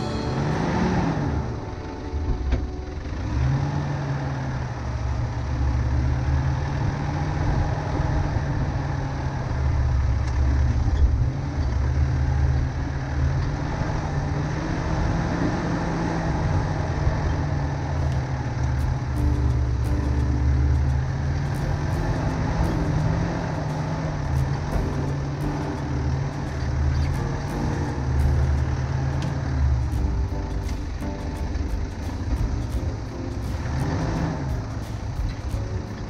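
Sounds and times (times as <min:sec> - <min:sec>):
car engine at low revs: 0:00.0 - 0:36.0
road noise: 0:00.0 - 0:36.0.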